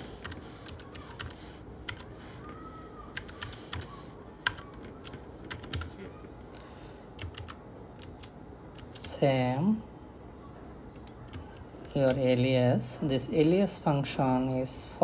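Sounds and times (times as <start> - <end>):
computer keyboard typing: 0.0 - 2.4, 3.1 - 6.1, 7.1 - 9.2, 10.9 - 12.2.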